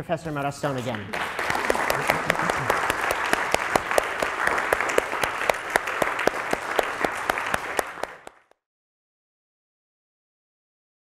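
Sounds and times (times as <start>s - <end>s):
audience applauding: 0.8s - 8.6s.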